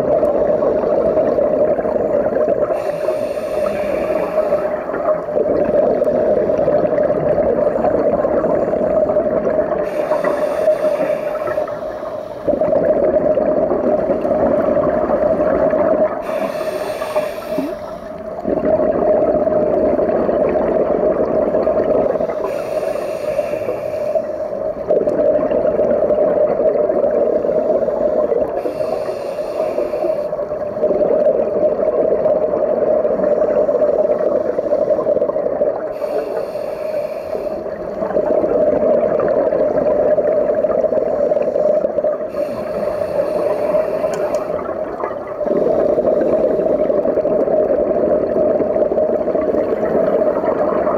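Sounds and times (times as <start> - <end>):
exhaled bubbles: 0.0 - 50.9
scuba regulator breathing: 1.0 - 6.7, 7.7 - 19.4, 21.7 - 24.9, 27.2 - 30.9, 33.2 - 38.6, 40.6 - 47.9, 49.4 - 50.9.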